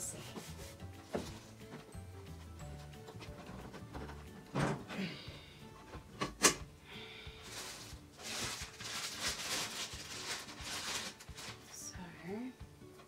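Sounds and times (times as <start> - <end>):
plastic bag crinkling: 7.4 - 11.8.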